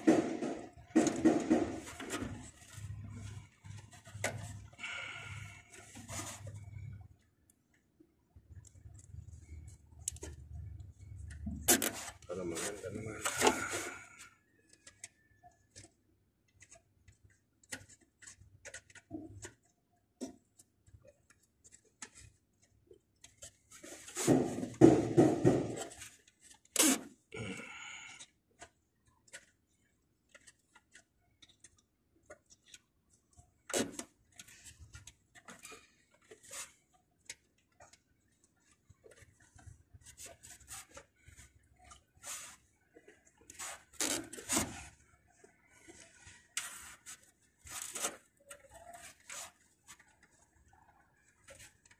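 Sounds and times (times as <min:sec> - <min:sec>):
small clicks and ticks: 0:28.1 - 0:44.3.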